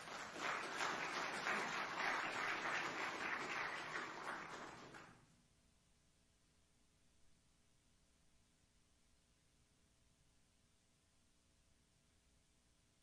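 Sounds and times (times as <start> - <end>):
congregation applauding: 0.0 - 5.2.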